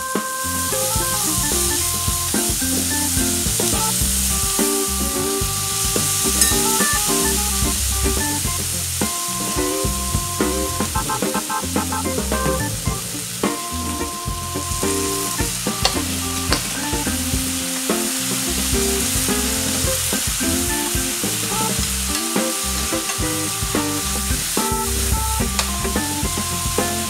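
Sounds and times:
food sizzling in a frying pan: 5.7 - 7.5, 13.0 - 25.7.

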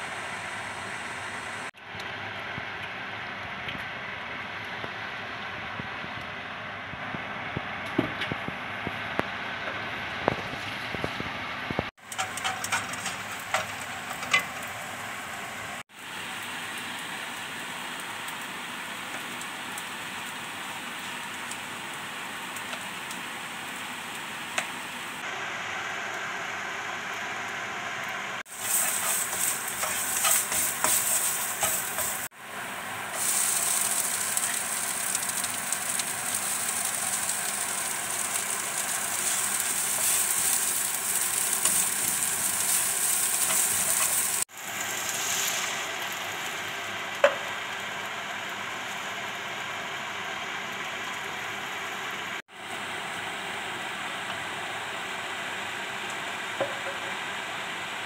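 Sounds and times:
oil sizzling in frying pan: 6.9 - 58.0
spatula stirring in pan: 12.0 - 14.6, 28.5 - 32.3, 33.1 - 44.4.

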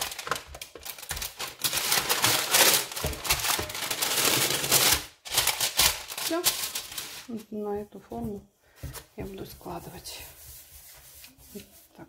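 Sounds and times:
parchment paper crinkling: 0.0 - 7.6.

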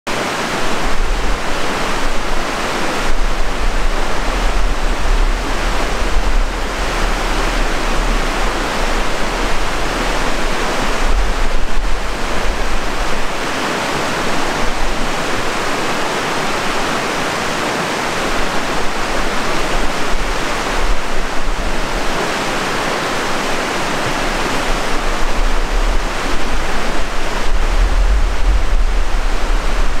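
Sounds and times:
water rushing over rocks: 0.1 - 30.0
low rumble: 3.0 - 13.3, 24.2 - 30.0.

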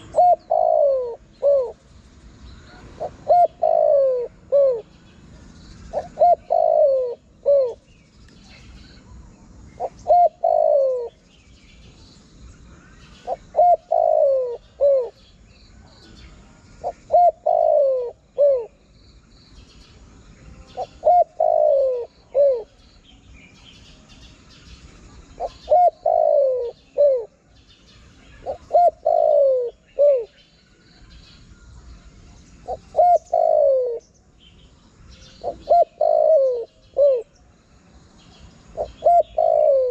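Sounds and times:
dove cooing: 0.0 - 1.9, 2.6 - 5.0, 5.9 - 7.9, 9.8 - 11.3, 13.2 - 15.2, 16.8 - 18.8, 20.7 - 22.8, 25.2 - 27.5, 28.3 - 30.4, 32.6 - 34.1, 35.3 - 37.4, 38.7 - 39.9
faint small bird chirps: 0.0 - 37.5.

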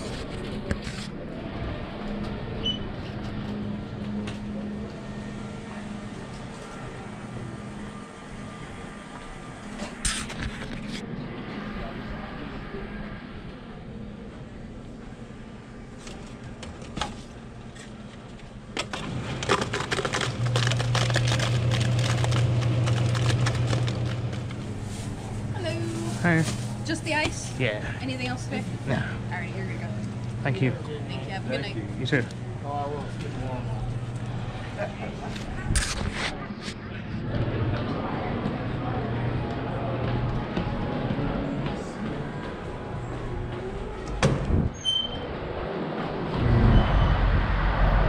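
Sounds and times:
low machine hum: 0.0 - 10.0, 10.8 - 48.0
ice dispenser motor hum: 18.8 - 24.8
ice cubes clattering into cup: 19.4 - 24.3.

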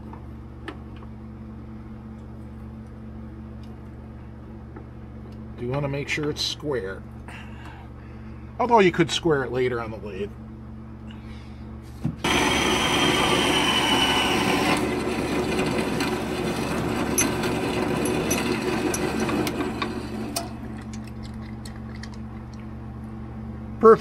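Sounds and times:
metal-cutting bandsaw running: 12.2 - 20.8.

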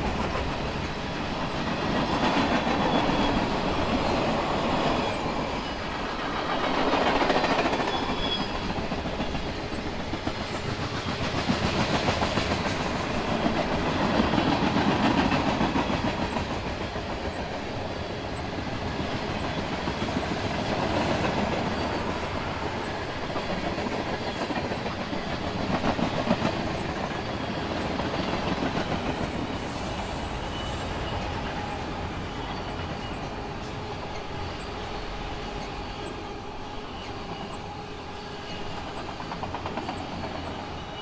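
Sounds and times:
freight train wheels on rail: 0.0 - 41.0.

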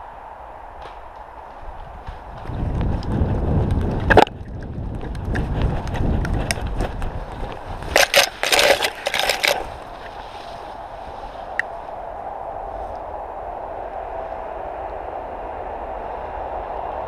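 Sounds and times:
wind on microphone: 0.0 - 17.0
branches brushing past: 0.6 - 3.2, 6.8 - 13.2
footsteps running on forest floor: 0.8 - 10.8
twigs snapping underfoot: 0.8 - 11.8.

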